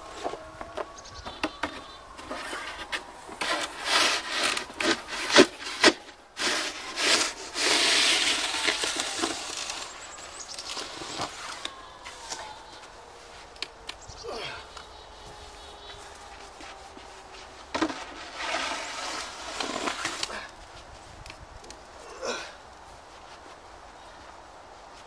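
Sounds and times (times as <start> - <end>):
snow shovel scraping: 2.3 - 11.6, 17.8 - 20.4.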